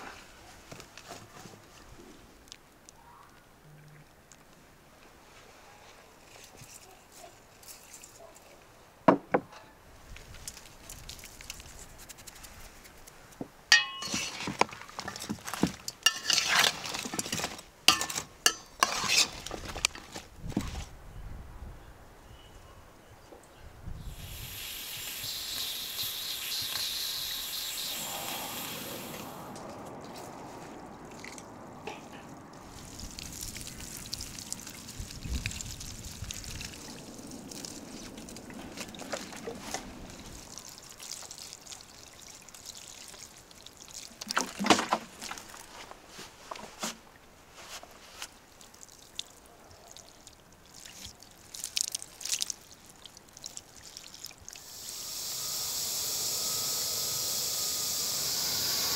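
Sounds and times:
water pouring from watering can: 32.6s - 45.7s, 50.1s - 57.5s.

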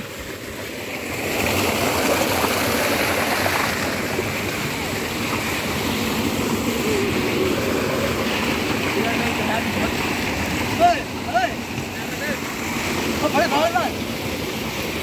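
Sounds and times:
water gushing into tank: 0.0s - 10.8s.

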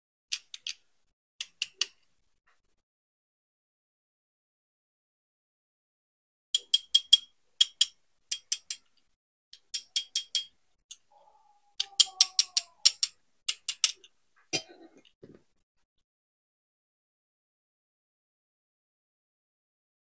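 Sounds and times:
plastic toy car clicks: 0.3s - 0.8s, 1.4s - 2.1s, 11.8s - 14.1s.

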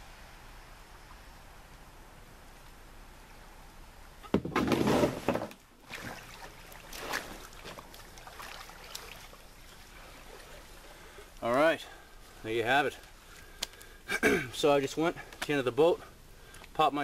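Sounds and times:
canoe scraping and splashing: 4.3s - 11.4s
small splashes and knocks: 4.3s - 11.4s
person wading in water: 5.8s - 12.4s.

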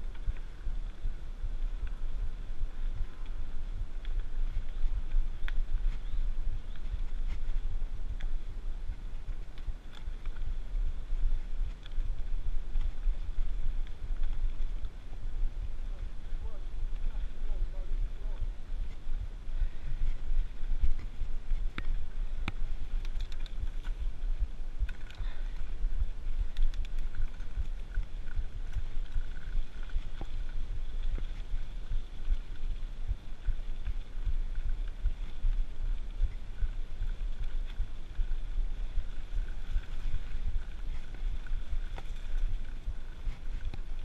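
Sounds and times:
mountain bike tyres rumbling on dirt: 0.0s - 44.0s.

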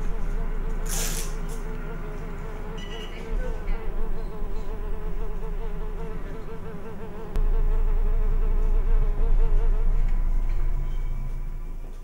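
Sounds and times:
fly buzzing: 0.0s - 11.0s
low rumble: 3.4s - 12.0s.

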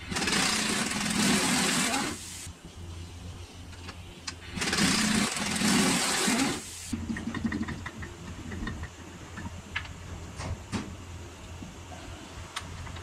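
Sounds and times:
power wrench running: 0.0s - 2.2s, 4.5s - 6.7s.

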